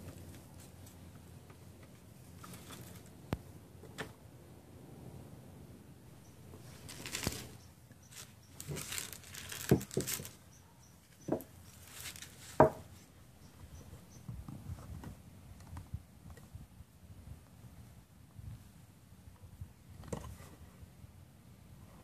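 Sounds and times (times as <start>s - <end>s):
plastic crinkling and rustling: 2.3s - 3.1s, 6.6s - 10.4s, 11.1s - 12.8s.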